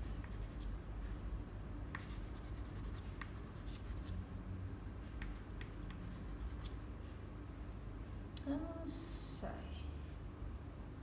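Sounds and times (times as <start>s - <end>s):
pastel scratching on paper: 0.2s - 0.7s, 1.9s - 4.2s.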